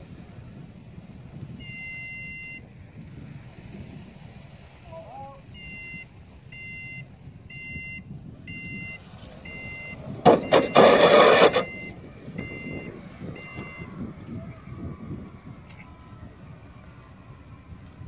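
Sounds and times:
electronic two-tone beeps: 0:01.6 - 0:02.6, 0:05.5 - 0:13.9.

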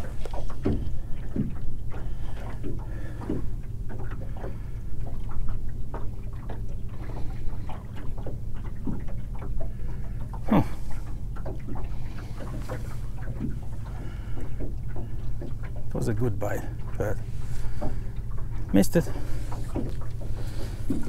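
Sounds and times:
waves slapping against boat hull: 0:00.0 - 0:21.0
steady low rumble: 0:09.6 - 0:21.0.

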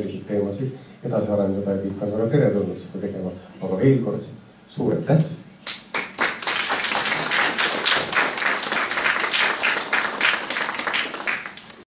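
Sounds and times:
audience applauding in rhythm: 0:05.7 - 0:11.9.

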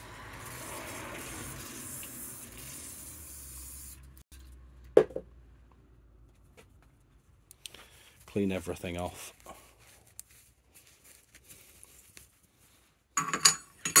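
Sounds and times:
can set down on bench: 0:05.0 - 0:05.3.

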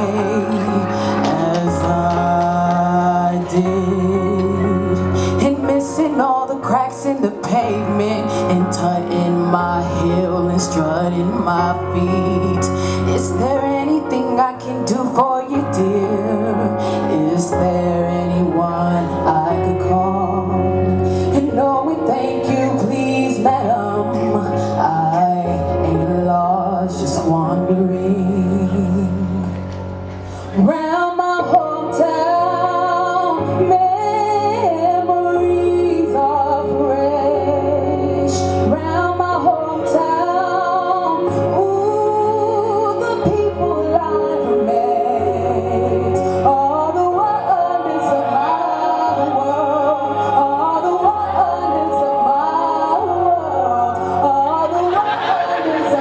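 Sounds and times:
musical accompaniment: 0:00.0 - 0:56.0
mixed choir singing slow song: 0:44.2 - 0:56.0.

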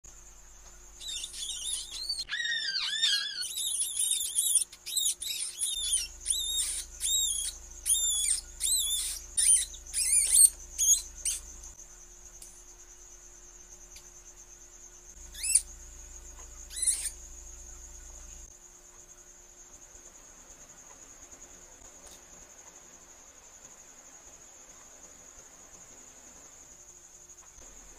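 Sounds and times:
mouse pups squeaking: 0:00.9 - 0:11.7, 0:15.2 - 0:17.2.

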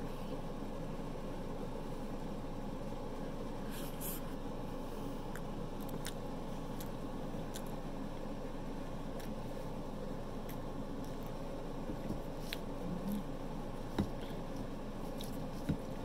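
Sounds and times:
person chewing with mouth clicks: 0:05.3 - 0:07.7, 0:12.4 - 0:15.9.

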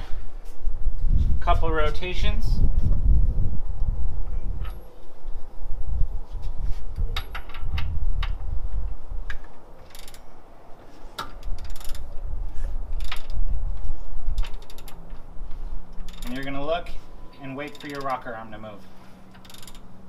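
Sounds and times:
socket ratchet clicking: 0:09.8 - 0:10.3, 0:11.2 - 0:12.1, 0:14.4 - 0:15.1, 0:16.0 - 0:16.4, 0:19.4 - 0:19.9.

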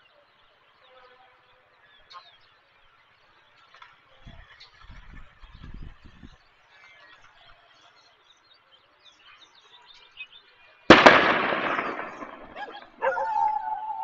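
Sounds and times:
faint bird chirps: 0:00.0 - 0:10.8, 0:11.7 - 0:14.0
loud sharp bang: 0:10.9 - 0:13.2.

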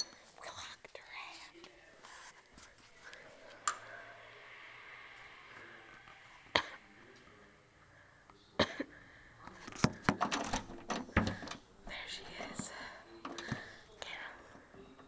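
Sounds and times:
sharp clicks and knocks: 0:09.7 - 0:11.6.

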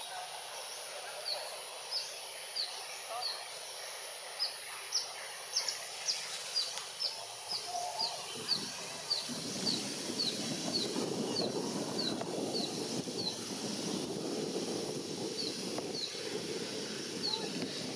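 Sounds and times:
steady high hiss: 0:00.0 - 0:17.9
bird chirping: 0:04.3 - 0:14.0.

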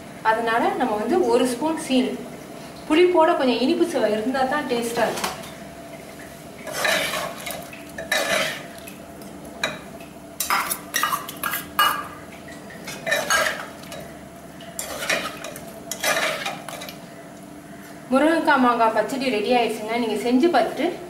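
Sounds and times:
faint steady hum: 0:00.0 - 0:21.0
spatula scraping metal pan: 0:06.7 - 0:07.4, 0:08.1 - 0:08.6.

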